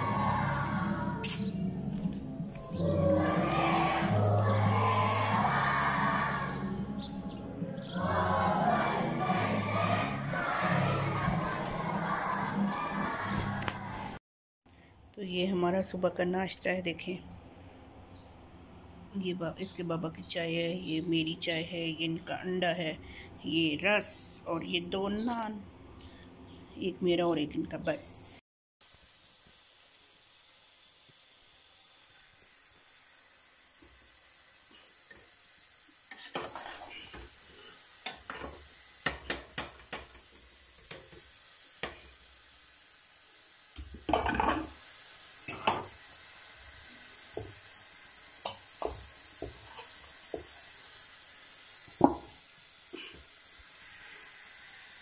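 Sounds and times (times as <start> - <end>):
steady high hiss: 0.0 - 14.2, 28.8 - 55.0.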